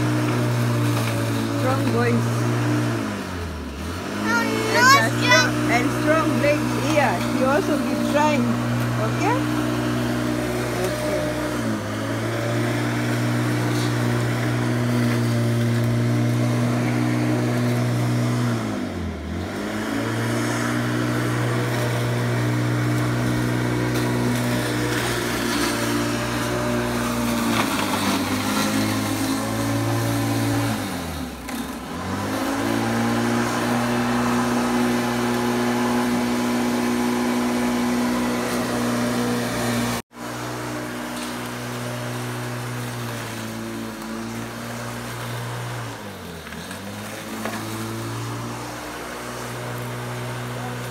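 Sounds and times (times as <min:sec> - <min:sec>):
electric lawn mower humming: 0:00.0 - 0:50.9.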